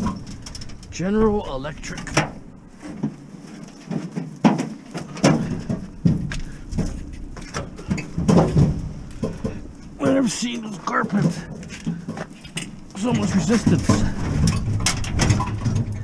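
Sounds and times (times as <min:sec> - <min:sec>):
sheet-metal cabinet knocking and scraping: 0:03.9 - 0:10.2, 0:11.0 - 0:16.0.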